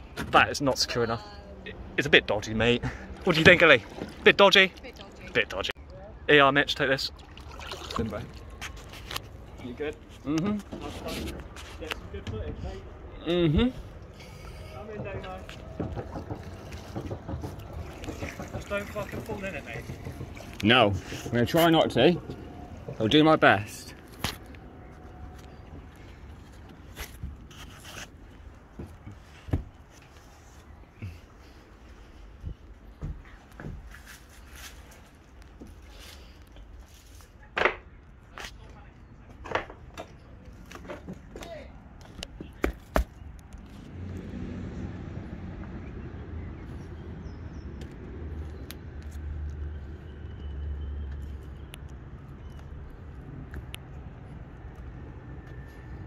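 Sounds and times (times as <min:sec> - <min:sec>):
scraping on wooden boat timbers: 0:14.2 - 0:31.6
sharp knocks on wood: 0:15.0 - 0:20.6.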